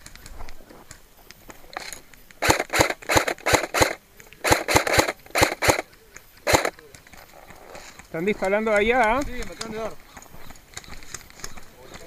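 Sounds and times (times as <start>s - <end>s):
airsoft rifle shots: 2.4s - 6.8s.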